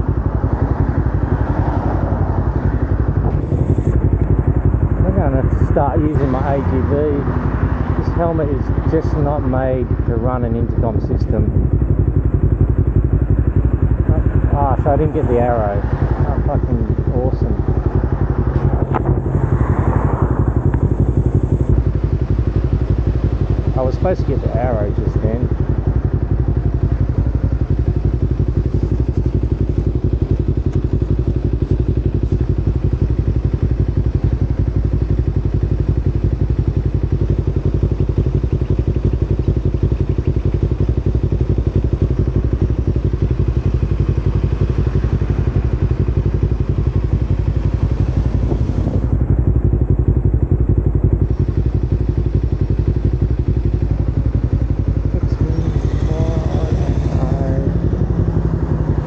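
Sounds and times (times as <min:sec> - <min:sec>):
motorcycle engine idling: 0:00.0 - 0:59.0.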